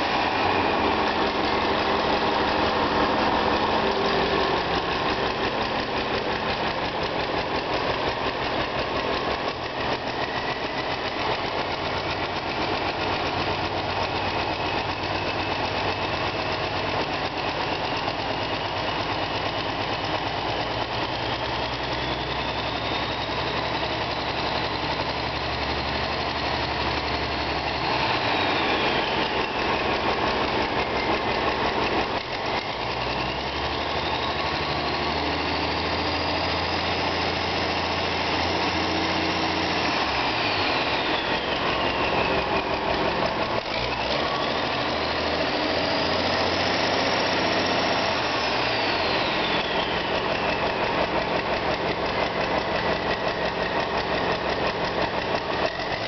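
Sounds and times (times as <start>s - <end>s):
diesel engine revving: 0.0s - 56.0s
turbo whistle: 21.3s - 24.0s, 48.4s - 51.0s.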